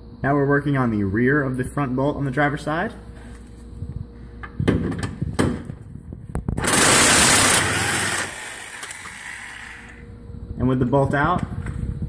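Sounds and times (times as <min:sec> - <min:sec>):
impact wrench running: 0:06.6 - 0:10.0.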